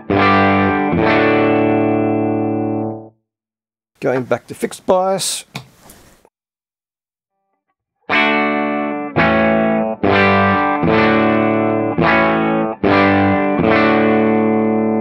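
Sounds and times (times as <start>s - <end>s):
overdriven electric guitar chords: 0.0s - 3.1s, 8.1s - 15.0s.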